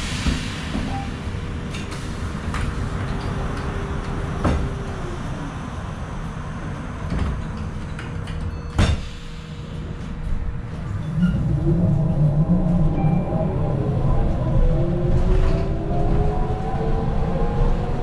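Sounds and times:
low rumble: 9.2s - 18.0s.

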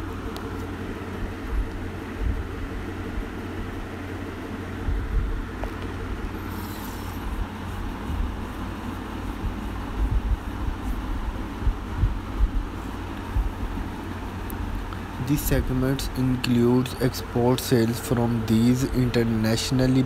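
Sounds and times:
low background rumble: 0.0s - 20.0s.

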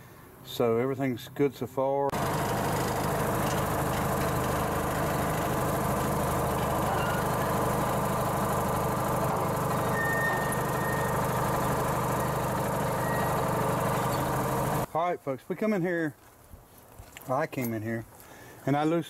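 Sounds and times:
engine idling: 2.1s - 14.9s.

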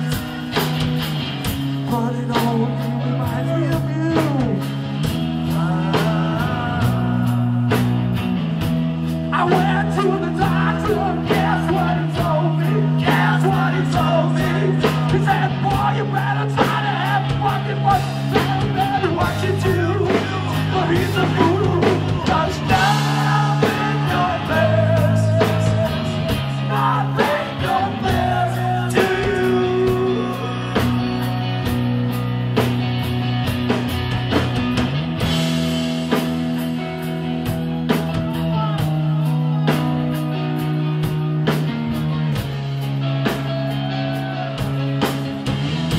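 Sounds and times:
electric guitar: 0.0s - 45.9s
drum and cymbal hits: 16.6s - 28.2s.

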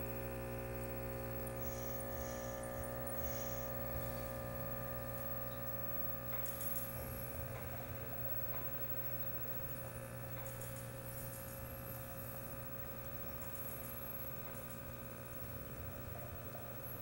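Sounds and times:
electrical hum of aquarium equipment: 0.0s - 17.0s
faint crackles and ticks: 9.6s - 12.0s.

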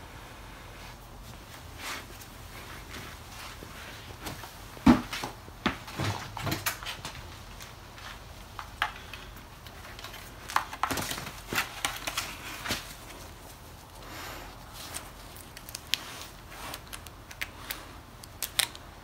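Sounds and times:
helmet handling knocks and rustles: 1.2s - 13.7s.

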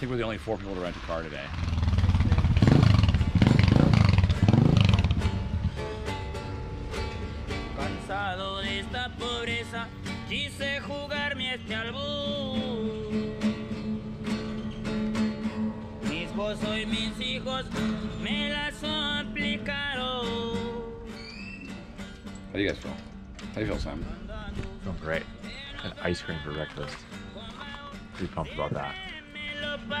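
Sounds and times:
acoustic guitar: 0.0s - 30.0s
man singing with vibrato: 7.7s - 14.2s, 16.0s - 21.2s, 24.0s - 30.0s.

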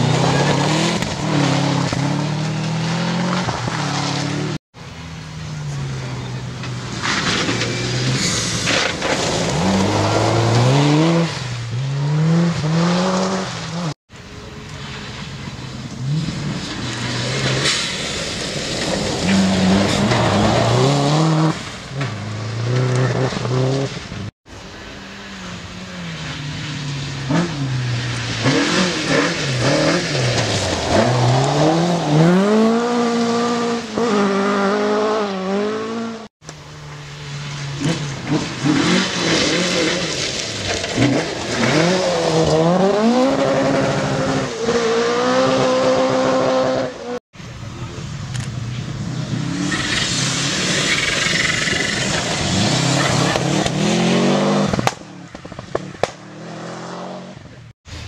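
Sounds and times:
rally car engine revving: 0.0s - 4.6s, 5.5s - 14.0s, 15.8s - 47.2s, 48.4s - 57.7s
tyres on gravel: 5.2s - 34.6s, 36.4s - 45.2s.

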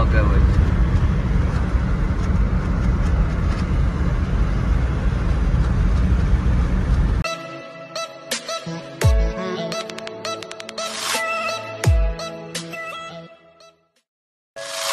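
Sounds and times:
car cabin road and engine noise: 0.0s - 7.2s
electronic music: 7.2s - 13.8s, 14.6s - 14.9s.

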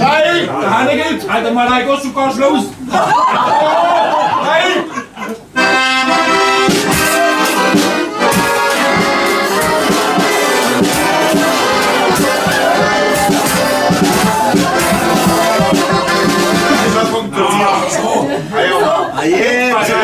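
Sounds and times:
accordion band playing: 4.8s - 19.2s.

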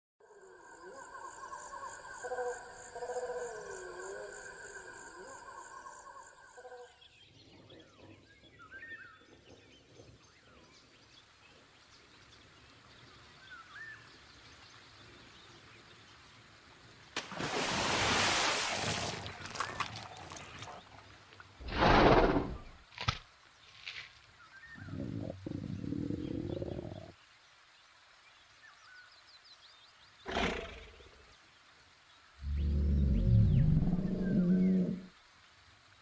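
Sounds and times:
faint outdoor ambience: 0.2s - 36.0s
stream water rushing: 17.1s - 22.3s.

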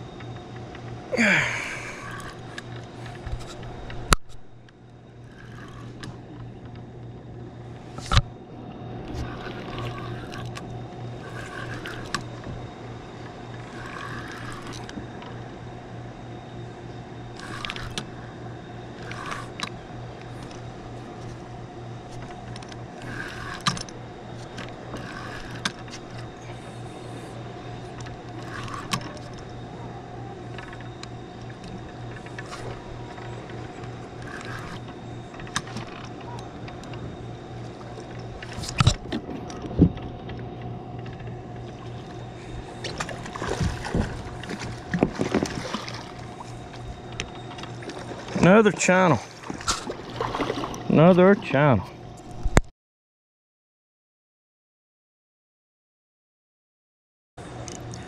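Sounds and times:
steady low hum: 0.0s - 52.7s, 57.4s - 58.0s
fishing reel clicks and knocks: 5.3s - 6.8s, 9.2s - 12.4s, 13.6s - 15.4s, 17.3s - 18.2s, 18.9s - 20.6s, 22.1s - 27.2s, 27.9s - 29.6s, 30.5s - 37.0s.

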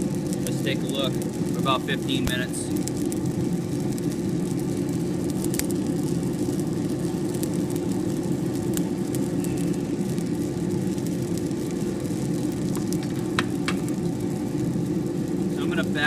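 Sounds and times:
coffee beans popping: 0.0s - 16.0s
coffee roaster rumbling: 0.0s - 16.0s.

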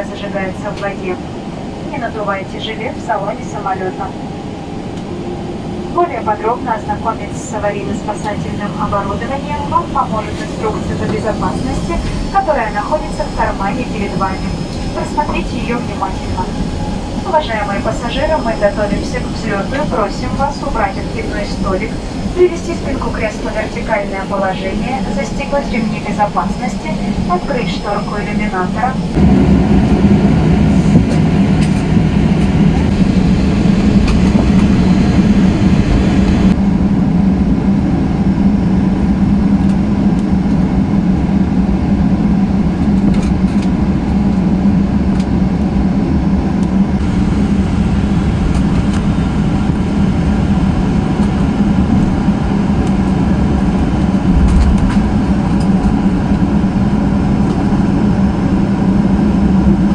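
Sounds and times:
airplane cabin hum: 0.0s - 59.9s
low bump: 53.8s - 56.5s.

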